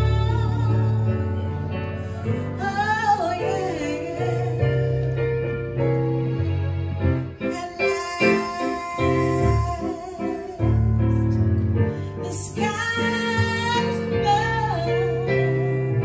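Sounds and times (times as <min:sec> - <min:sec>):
woman singing with vibrato: 0:00.0 - 0:01.6, 0:02.4 - 0:05.0, 0:07.5 - 0:11.2, 0:12.2 - 0:16.0
keyboard chords: 0:00.0 - 0:16.0.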